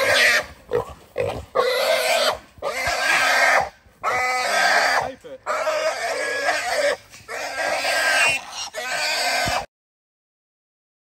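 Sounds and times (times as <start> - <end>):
hog squealing: 0.0 - 0.5, 1.6 - 9.7.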